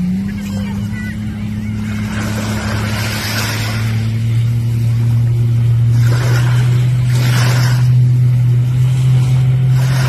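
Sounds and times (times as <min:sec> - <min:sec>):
boat engine droning: 0:00.0 - 0:10.0
water washing and splashing: 0:00.0 - 0:10.0.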